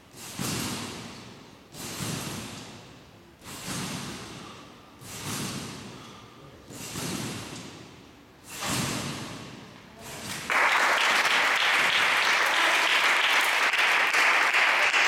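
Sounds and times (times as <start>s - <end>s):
landing on trampoline: 0.1s - 10.5s
applause: 10.5s - 15.0s.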